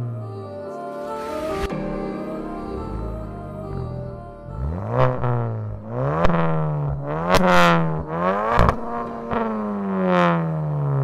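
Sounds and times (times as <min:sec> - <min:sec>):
car engine revving: 0:01.2 - 0:11.0.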